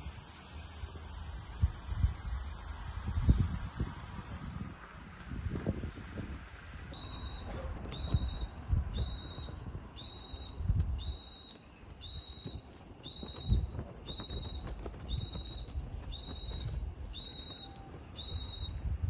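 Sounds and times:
electronic alarm beeping: 6.9s - 14.6s.

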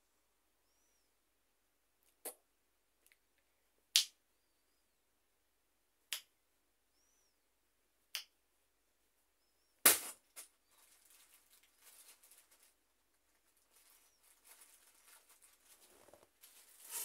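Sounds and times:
faint high chirps: 0.6s - 1.2s, 6.9s - 7.5s.

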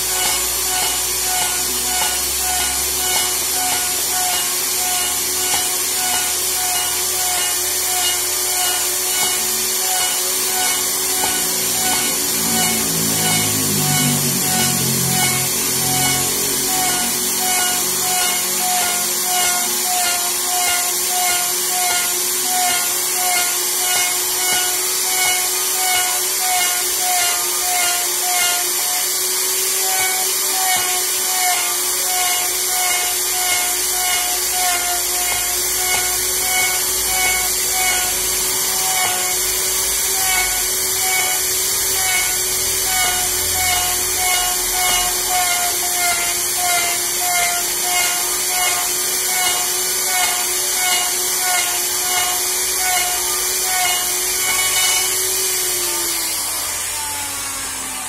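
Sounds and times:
music with steady beat: 0.0s - 27.2s
electric router cutting wood: 0.0s - 58.0s.

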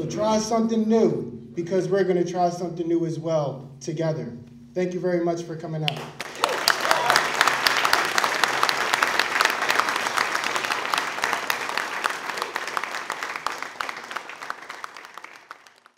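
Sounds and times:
audience applauding: 5.9s - 15.9s.

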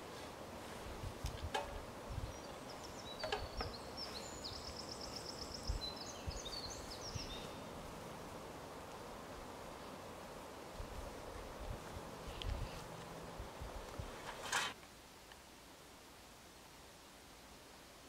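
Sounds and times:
outdoor background noise: 0.0s - 18.0s
songbird singing with trill: 2.2s - 7.7s.

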